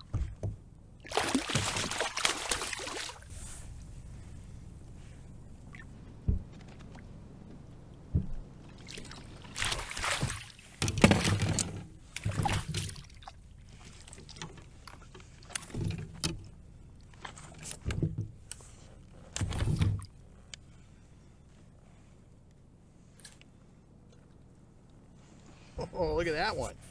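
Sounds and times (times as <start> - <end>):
fish splashing in water: 1.0 - 3.2.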